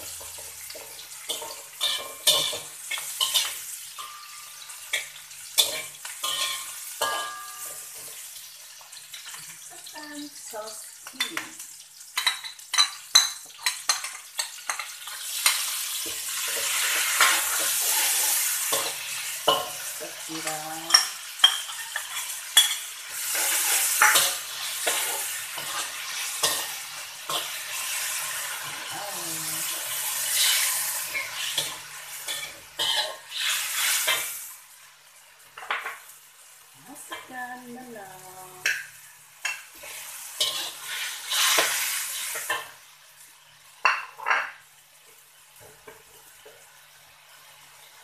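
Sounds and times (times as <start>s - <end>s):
vegetables sizzling in oil: 0.0s - 48.0s
spatula scraping a metal wok: 0.2s - 8.2s, 14.3s - 20.2s, 20.9s - 28.9s, 29.7s - 34.4s, 39.4s - 42.7s.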